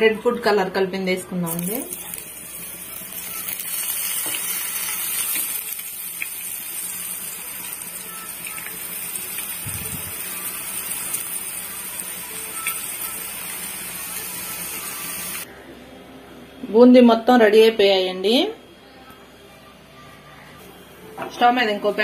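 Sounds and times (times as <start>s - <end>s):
batter deep-frying in hot oil: 1.4s - 15.4s.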